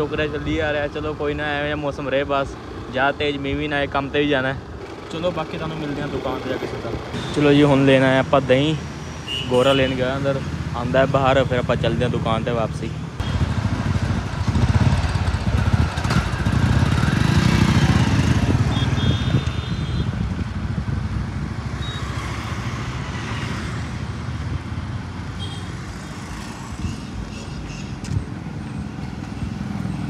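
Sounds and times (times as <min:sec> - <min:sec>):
motorcycle engine rumble: 0:10.4 - 0:22.2.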